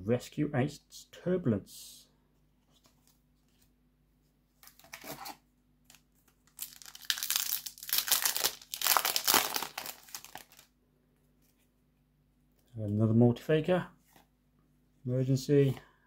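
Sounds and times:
foil wrapper tearing and crinkling: 6.4s - 10.7s.

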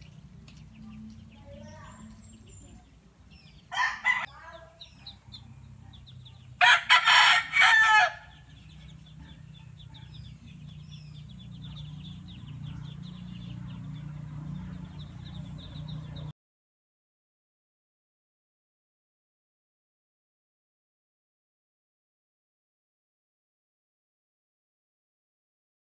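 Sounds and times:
rooster crowing: 3.7s - 4.3s, 6.6s - 8.4s.

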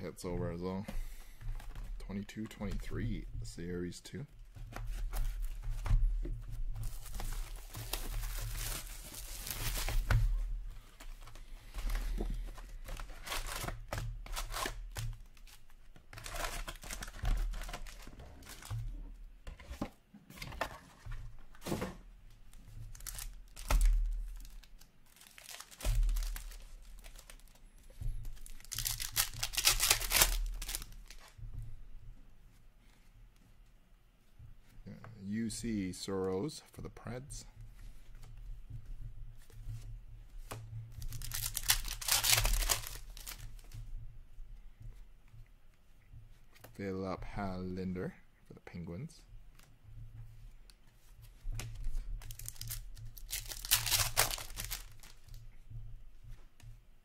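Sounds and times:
card pack wrappers tearing: 6.8s - 10.1s, 13.0s - 15.6s, 22.9s - 27.6s, 28.4s - 31.2s, 41.0s - 43.4s, 52.2s - 55.3s.

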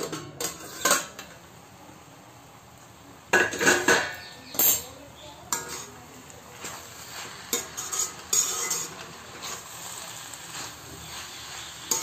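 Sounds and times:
vegetables sizzling: 0.0s - 12.0s
spatula scraping in pan: 0.4s - 1.3s, 3.6s - 12.0s.

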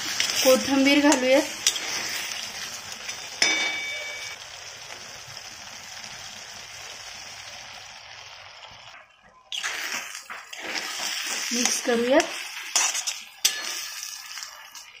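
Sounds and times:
curry sizzling and bubbling: 0.0s - 15.0s
metal spatula clinking on pan: 3.1s - 4.4s, 12.7s - 14.6s.

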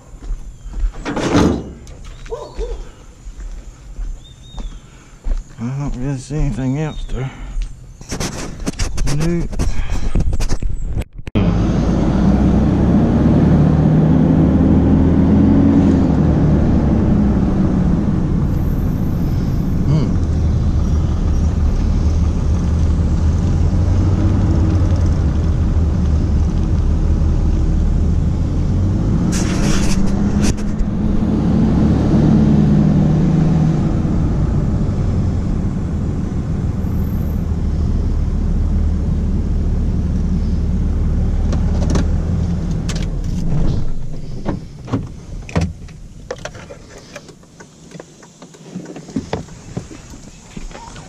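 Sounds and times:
road noise: 0.0s - 51.0s
vehicle engine running: 11.4s - 46.4s.

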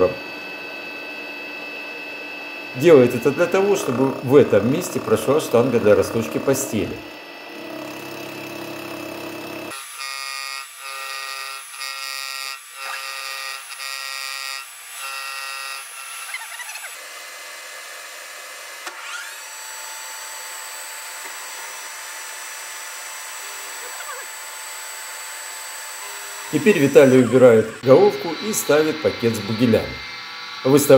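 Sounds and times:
milling machine spindle whining: 0.0s - 10.3s, 18.2s - 30.9s.

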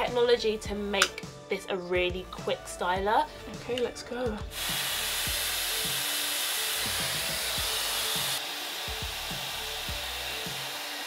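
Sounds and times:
background music with steady beat: 0.0s - 11.0s
hair dryer blowing: 4.5s - 11.0s.

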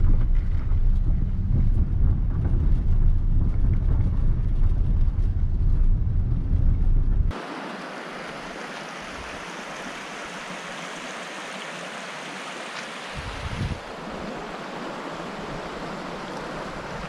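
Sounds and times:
low rumble: 0.0s - 7.4s
creek running over rocks: 7.3s - 17.0s.

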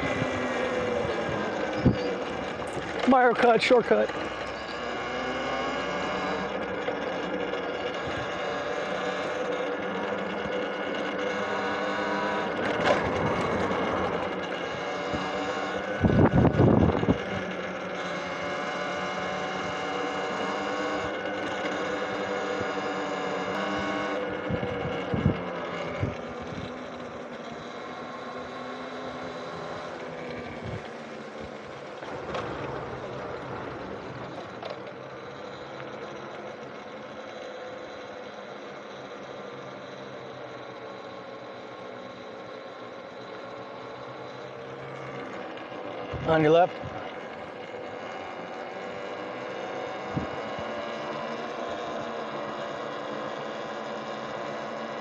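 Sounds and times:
electric bike motor whining: 0.0s - 55.0s.

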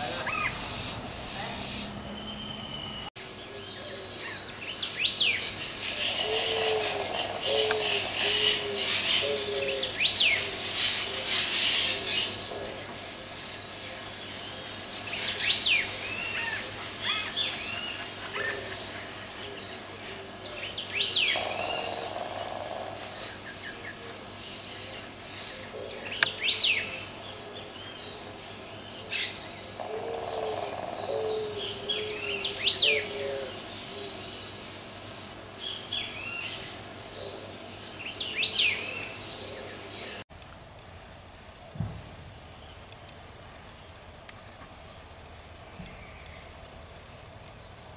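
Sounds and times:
low bird cooing: 5.9s - 12.9s, 29.8s - 34.2s.

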